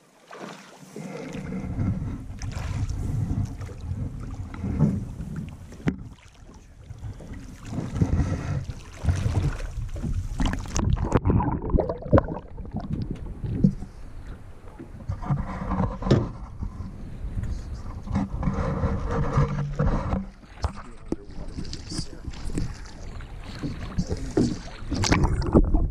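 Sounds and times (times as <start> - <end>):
fish thrashing and splashing water: 0.2 - 1.5, 2.3 - 4.5, 5.6 - 13.8, 20.4 - 25.9.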